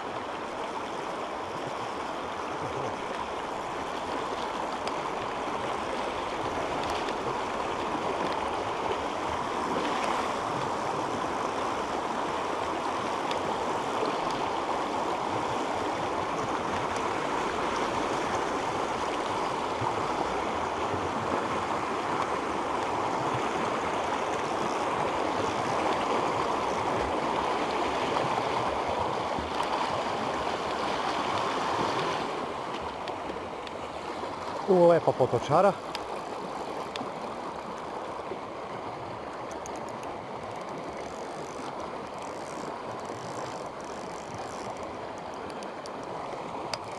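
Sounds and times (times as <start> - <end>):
stream rushing over rocks: 0.0 - 46.9.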